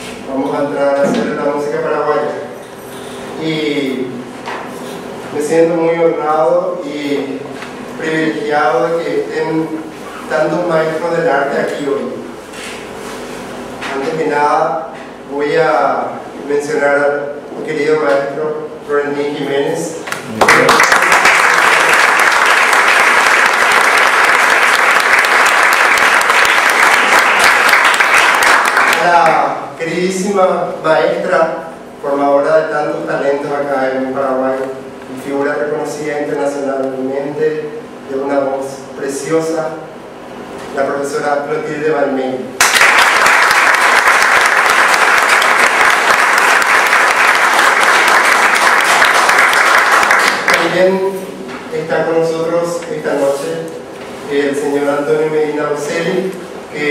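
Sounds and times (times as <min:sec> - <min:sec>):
audience applauding: 0:20.3 - 0:29.2, 0:42.6 - 0:50.8.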